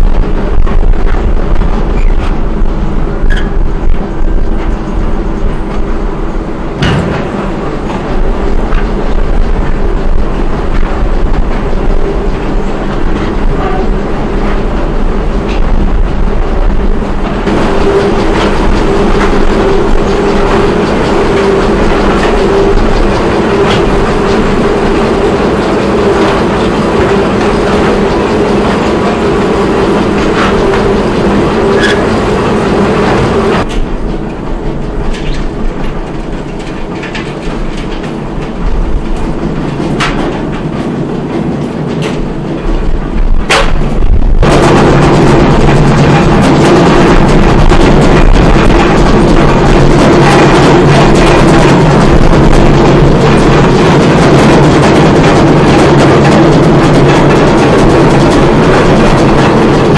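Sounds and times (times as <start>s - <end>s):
machinery rattling: 0.0s - 59.9s
motor hum: 0.0s - 59.9s.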